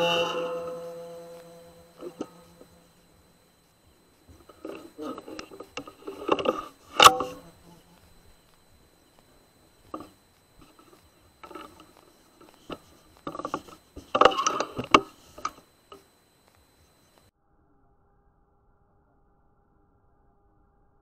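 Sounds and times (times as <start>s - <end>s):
rifle handling clicks and rustles: 4.2s - 16.7s.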